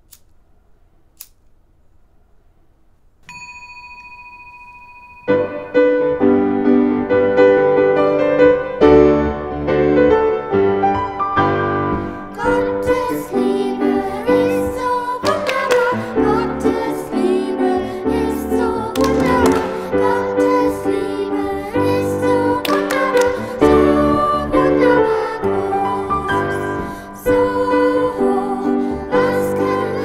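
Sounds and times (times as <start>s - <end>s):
singing bowl ringing: 3.2s - 5.8s
piano music: 5.3s - 30.0s.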